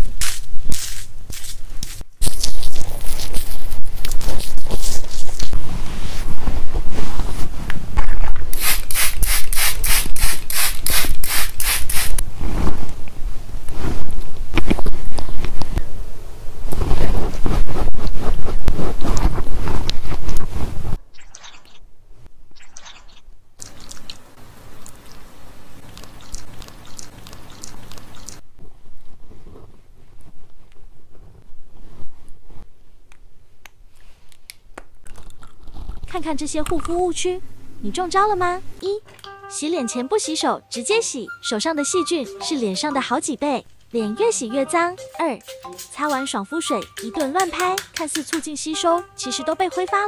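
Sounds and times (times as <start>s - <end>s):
cream rustling on skin: 0.2s - 7.7s
pad rubbing over skin: 2.8s - 7.7s, 16.8s - 21.0s
mist spray bottle puffs: 8.5s - 12.2s.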